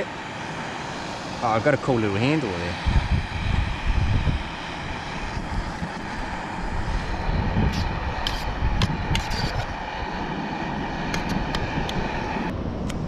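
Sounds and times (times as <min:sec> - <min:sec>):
steady rushing noise: 0:00.0 - 0:13.0
low rumble: 0:02.8 - 0:13.0
utensil scraping metal pot: 0:07.6 - 0:09.7.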